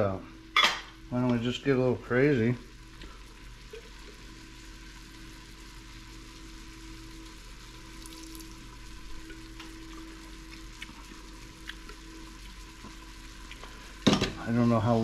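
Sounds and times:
meat sizzling in pot: 0:00.5 - 0:15.0
grease pouring: 0:07.8 - 0:12.0.

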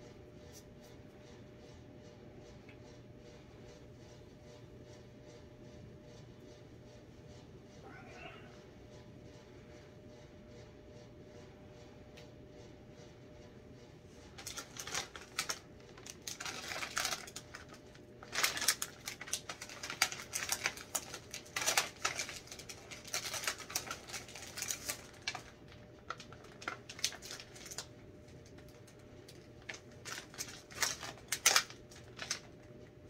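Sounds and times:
plastic packet crinkling: 0:14.3 - 0:32.9.

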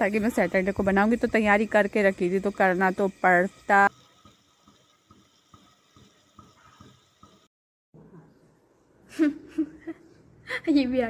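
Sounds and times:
syrup bubbling in a metal pan: 0:00.0 - 0:07.5.

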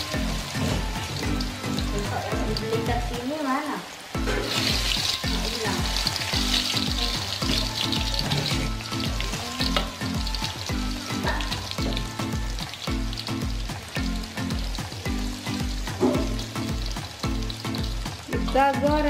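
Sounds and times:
food sizzling in hot oil: 0:00.0 - 0:19.0
background music bass beat: 0:04.2 - 0:19.0.

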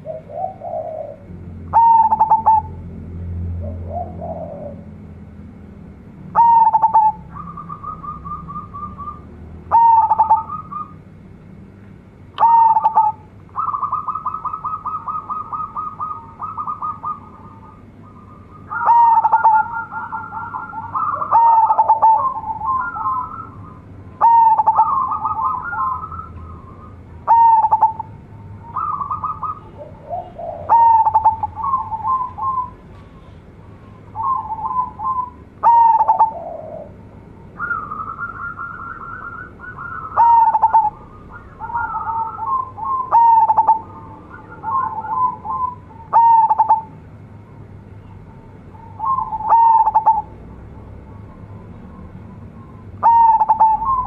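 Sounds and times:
dove cooing: 0:00.0 - 0:05.1, 0:06.3 - 0:11.0, 0:12.4 - 0:47.0, 0:48.7 - 0:50.5, 0:51.4 - 0:54.0.

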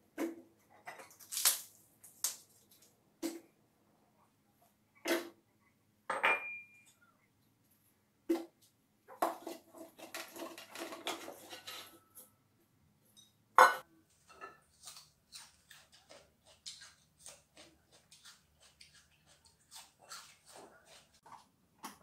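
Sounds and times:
dishes and utensils clinking: 0:06.1 - 0:07.0, 0:13.2 - 0:14.7.

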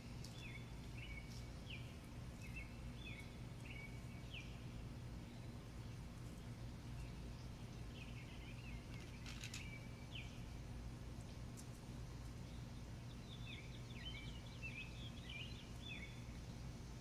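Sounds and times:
steady low hum: 0:00.0 - 0:17.0
small bird chirping: 0:05.3 - 0:10.5, 0:12.4 - 0:16.6.

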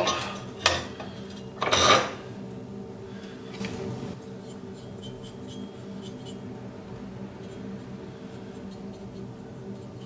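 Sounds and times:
brush scratching on metal pipe: 0:04.2 - 0:06.6, 0:07.2 - 0:10.0.

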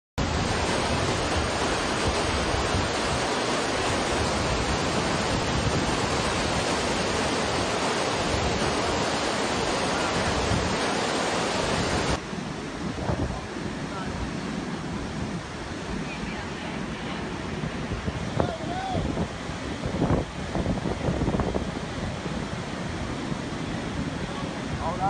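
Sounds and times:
water rushing over boulders: 0:00.2 - 0:25.0.

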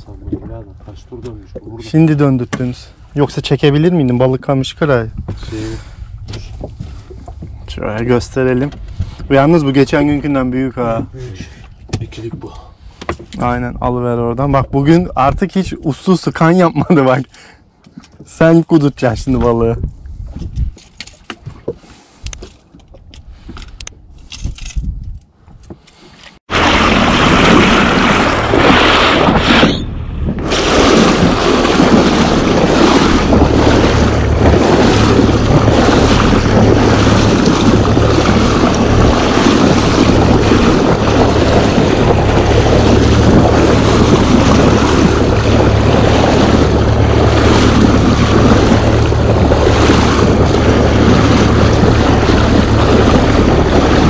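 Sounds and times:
wind on microphone: 0:05.0 - 0:11.6, 0:19.2 - 0:20.8, 0:23.1 - 0:25.8, 0:26.4 - 0:54.0
sea water rushing: 0:26.4 - 0:54.0.

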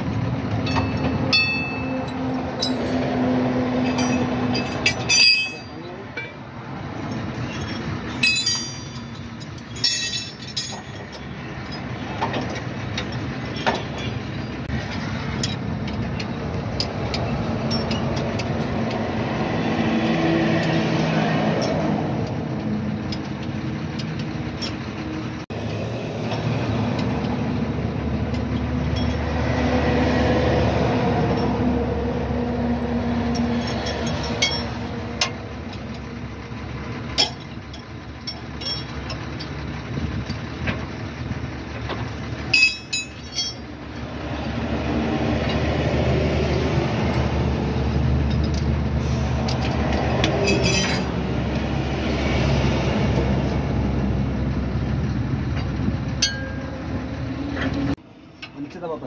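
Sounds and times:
road traffic rumble: 0:00.0 - 0:59.0
spanners clinking on metal: 0:00.5 - 0:03.2, 0:03.8 - 0:06.4, 0:07.0 - 0:19.0, 0:33.3 - 0:36.1, 0:37.1 - 0:40.7, 0:41.9 - 0:44.1, 0:47.8 - 0:51.2, 0:55.6 - 0:56.7.

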